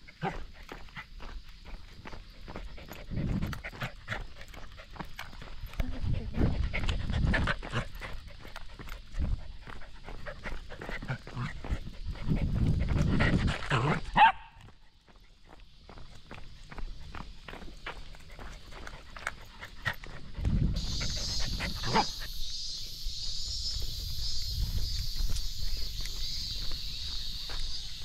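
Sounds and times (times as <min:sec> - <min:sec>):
dog panting: 0:00.1 - 0:13.7, 0:16.6 - 0:22.4
quick footsteps on paving: 0:00.1 - 0:20.9, 0:23.2 - 0:28.0.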